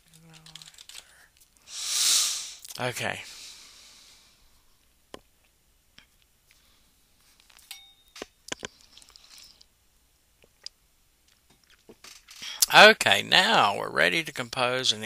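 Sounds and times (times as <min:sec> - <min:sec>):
faint clicks and ticks: 0:00.0 - 0:01.6.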